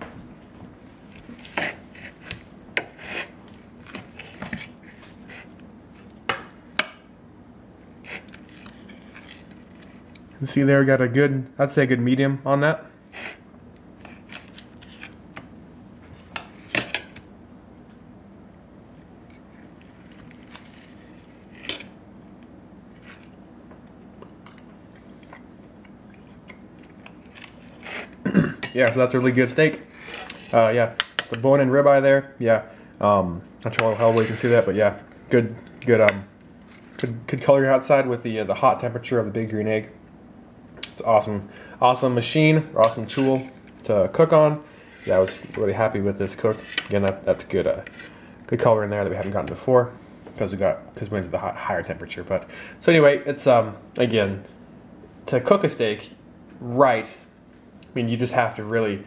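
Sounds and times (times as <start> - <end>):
knife and fork scraping a plate: 1.2 - 5.6, 30.0 - 30.6, 33.8 - 34.7, 42.8 - 43.6, 46.4 - 46.9.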